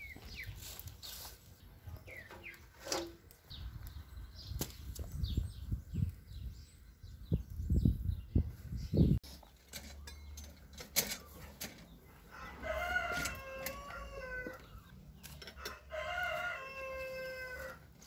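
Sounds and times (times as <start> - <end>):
rooster crowing: 12.3 - 14.7, 15.6 - 17.9.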